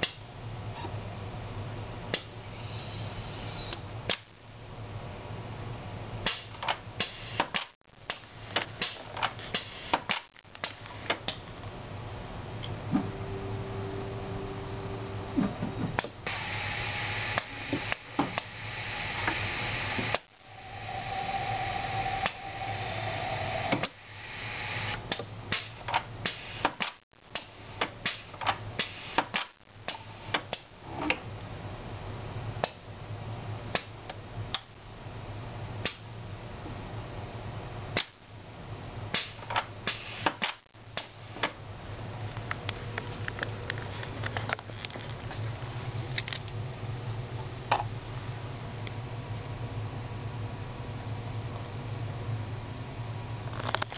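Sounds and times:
steady low hum: 0:00.0 - 0:53.9
pneumatic valves clicking: 0:06.2 - 0:11.4, 0:16.0 - 0:30.7, 0:39.1 - 0:41.6
air hissing: 0:06.3 - 0:11.4, 0:16.2 - 0:30.6, 0:39.2 - 0:41.5.

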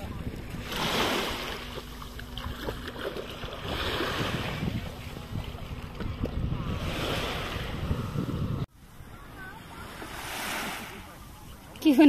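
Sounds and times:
small waves washing on beach: 0:00.0 - 0:08.2, 0:08.8 - 0:12.0
wind on microphone: 0:00.0 - 0:08.7.

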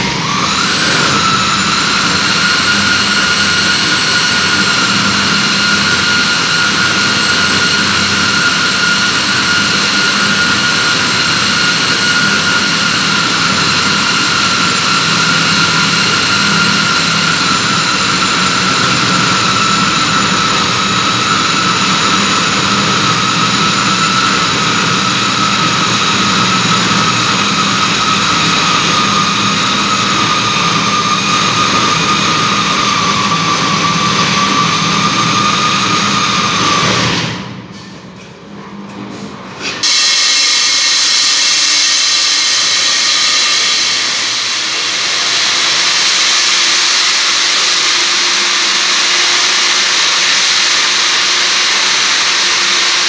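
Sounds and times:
electric core drill whining: 0:00.0 - 0:37.5, 0:39.8 - 0:53.0.

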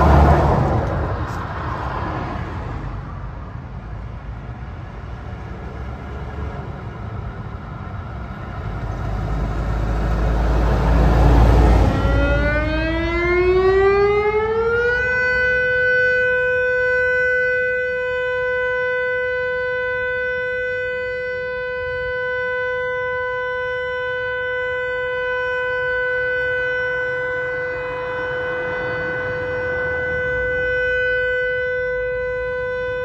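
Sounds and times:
siren rising steady tone: 0:00.0 - 0:33.0.

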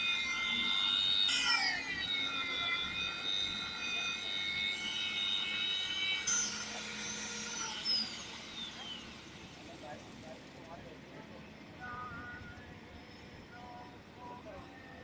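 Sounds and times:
drill motor whining: 0:00.0 - 0:10.0.

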